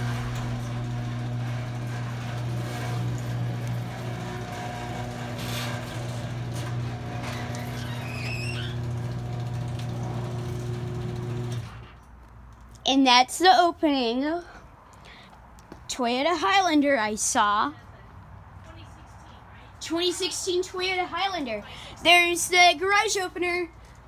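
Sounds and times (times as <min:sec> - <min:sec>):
garage door opener motor hum: 0:00.0 - 0:12.0.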